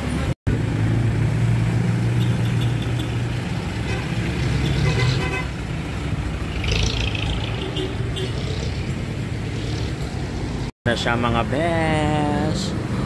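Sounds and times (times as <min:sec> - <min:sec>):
vehicle engine humming: 0:00.0 - 0:13.0
vehicle horn tooting: 0:03.8 - 0:05.6.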